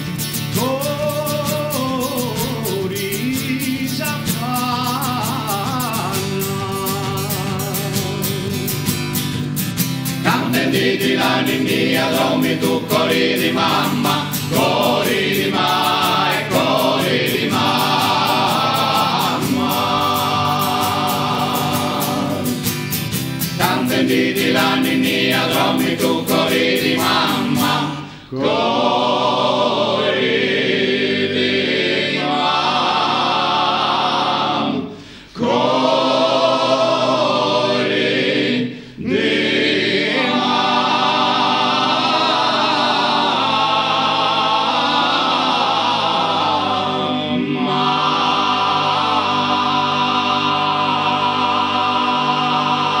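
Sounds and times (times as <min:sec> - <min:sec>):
male vocal group singing: 0:00.0 - 0:09.0, 0:10.1 - 0:53.0.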